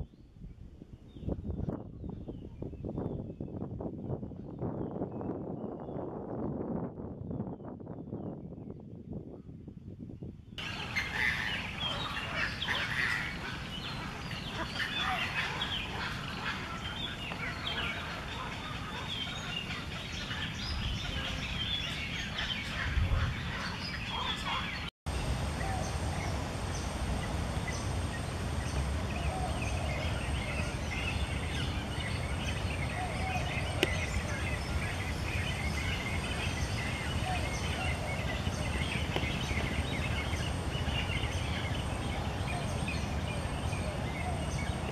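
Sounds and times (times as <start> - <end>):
waterbird colony calls: 10.6 - 24.9.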